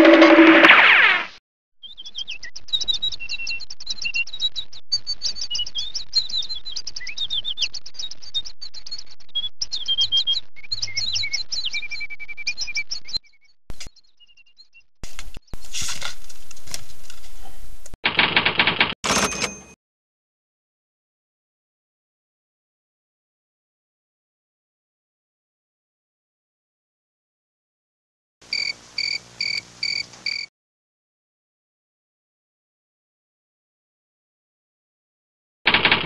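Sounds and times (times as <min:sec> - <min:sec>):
small birds chirping: 0:28.5 - 0:30.4.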